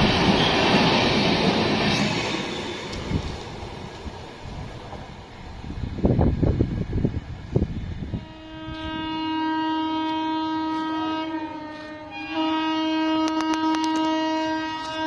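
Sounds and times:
locomotive horn blast: 0:08.1 - 0:15.0.

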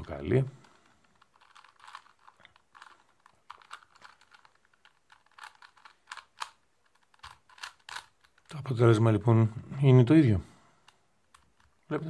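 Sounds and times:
puzzle cube plastic clicking: 0:00.0 - 0:08.7, 0:10.8 - 0:11.9.

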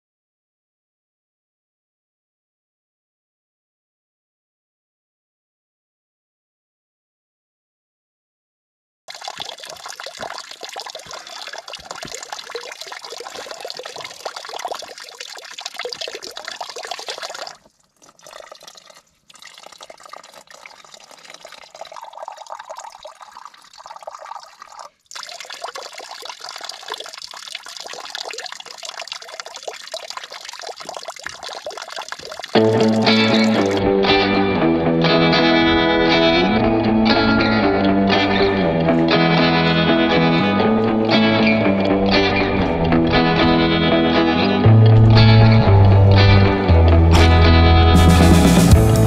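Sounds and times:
water filling plastic flask: 0:09.1 - 0:33.9, 0:44.6 - 0:47.3
water splashing into stone trough: 0:09.1 - 0:33.9.

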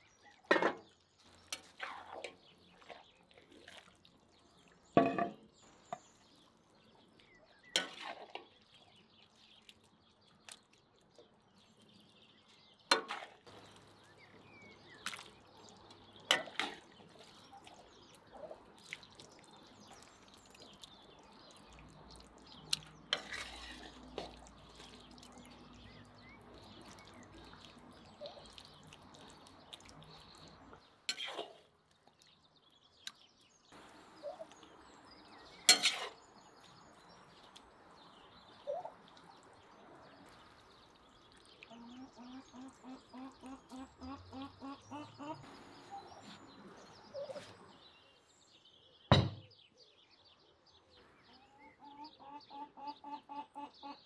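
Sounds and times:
wet plops of food: 0:14.9 - 0:23.4
metal spoon scraping a plate: 0:23.1 - 0:24.0, 0:35.7 - 0:36.2.

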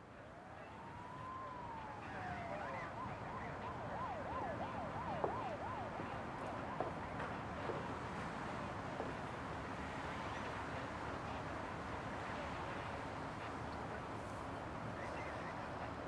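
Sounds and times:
emergency siren wailing and yelping: 0:00.4 - 0:07.2.

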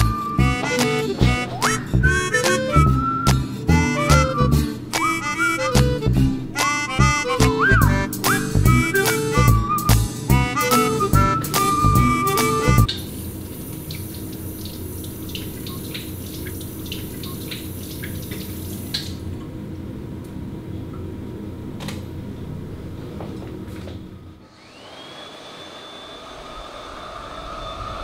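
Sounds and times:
water running from a tap: 0:12.9 - 0:19.2
electric hand dryer whine: 0:24.4 - 0:28.0.

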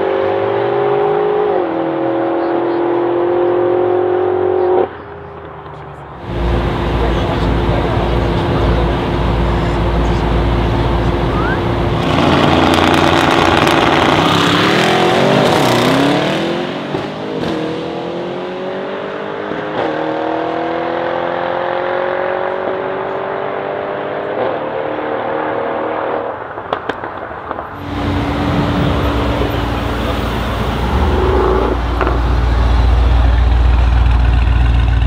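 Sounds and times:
cars accelerating hard: 0:00.0 - 0:26.8, 0:27.7 - 0:35.0
car engine idling: 0:05.0 - 0:14.3, 0:27.8 - 0:35.0.

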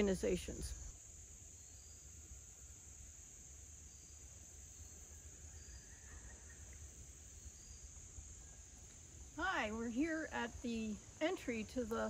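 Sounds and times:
crickets and insects trilling: 0:00.0 - 0:12.0.

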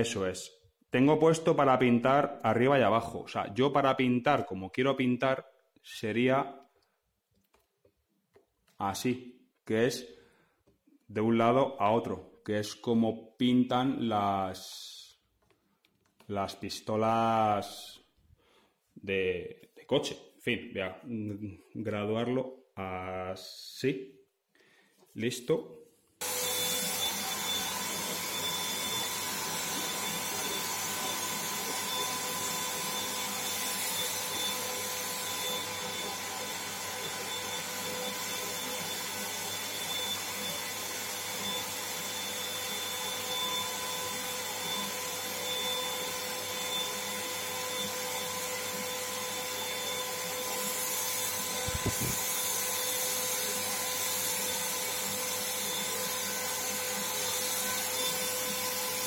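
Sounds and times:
paint spray gun running: 0:49.6 - 0:59.0.

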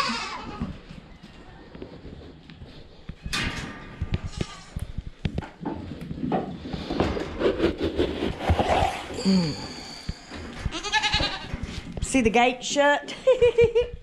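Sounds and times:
goat bleating: 0:00.0 - 0:00.7, 0:10.7 - 0:11.5.

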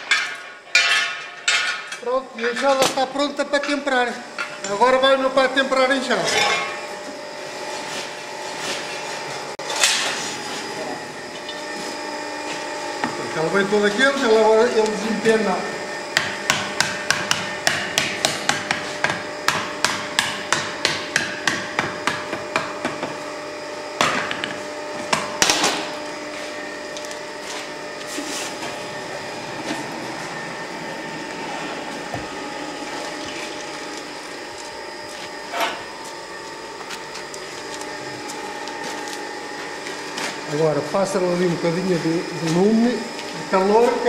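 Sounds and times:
steady hum: 0:00.0 - 0:44.0.

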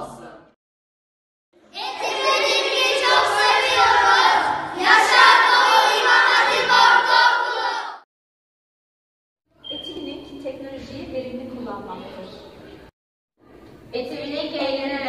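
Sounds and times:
children's voices in unison: 0:01.7 - 0:08.0.

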